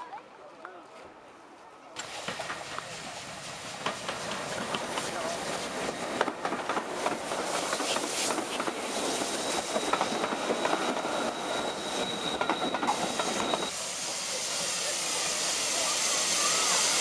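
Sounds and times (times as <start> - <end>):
train wheels clacking over rail joints: 3.8 - 13.7
high wheel squeal: 7.9 - 13.8.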